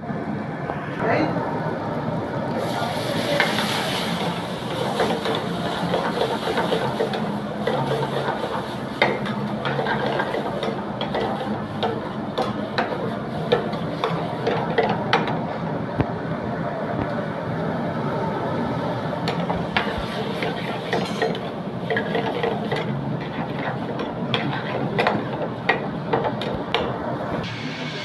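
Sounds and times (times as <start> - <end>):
chicken sizzling in hot oil: 2.6 - 12.0.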